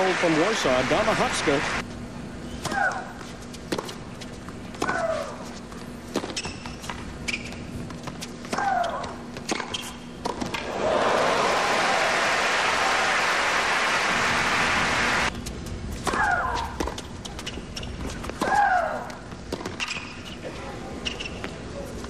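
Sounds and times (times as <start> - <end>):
crowd applause: 0.0 - 1.8, 10.6 - 15.3.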